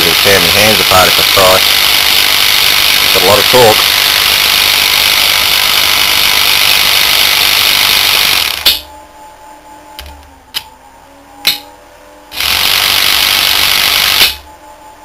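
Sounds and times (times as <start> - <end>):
electric motor running: 0.0 - 8.8, 12.3 - 14.5
sharp click: 11.4 - 11.7.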